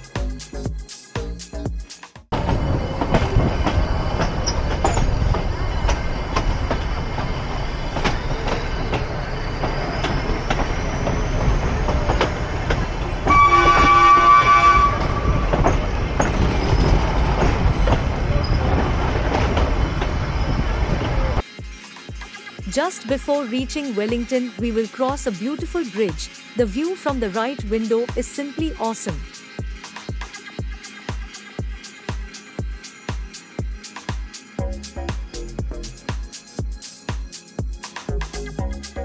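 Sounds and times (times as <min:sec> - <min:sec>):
train rumbling on track: 0:02.3 - 0:39.0
rail joint clicks: 0:02.4 - 0:21.4
train horn blast: 0:13.2 - 0:15.6.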